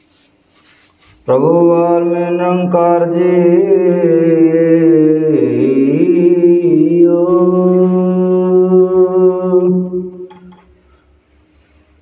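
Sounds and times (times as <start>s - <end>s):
man chanting: 1.2s - 10.3s.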